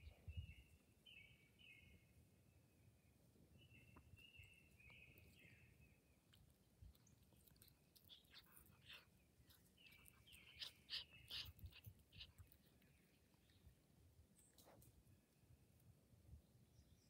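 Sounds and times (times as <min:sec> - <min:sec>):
faint birdsong: 0:00.0 - 0:17.0
cat sniffing: 0:06.2 - 0:14.9.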